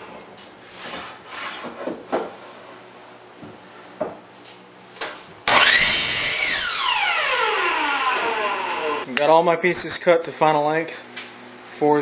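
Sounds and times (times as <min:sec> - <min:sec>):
miter saw motor whine: 0:05.5 - 0:09.1.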